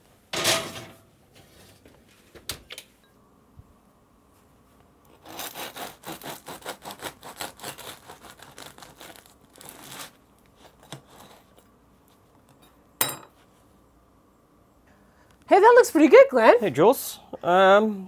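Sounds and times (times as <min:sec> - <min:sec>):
bread knife sawing through crust: 0:05.1 - 0:11.5.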